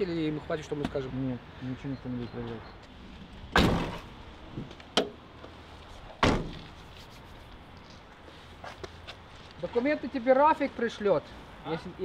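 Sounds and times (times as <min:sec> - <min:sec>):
loud thuds: 0:06.2 - 0:06.6.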